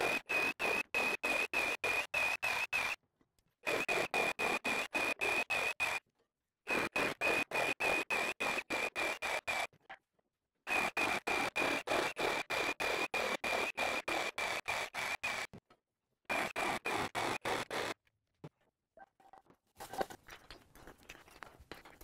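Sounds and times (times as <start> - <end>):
reciprocating saw cutting wood: 0.0 - 3.0, 3.6 - 6.0, 6.7 - 9.7, 10.7 - 15.6, 16.3 - 18.0.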